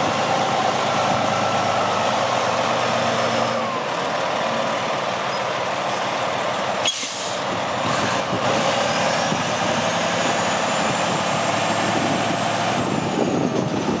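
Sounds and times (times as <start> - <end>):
diesel truck engine running: 0.0 - 14.0
air brake hiss: 6.8 - 7.4.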